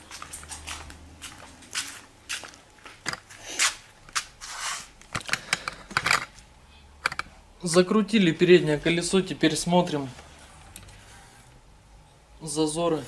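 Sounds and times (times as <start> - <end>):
scraping rustles: 0.0 - 6.4.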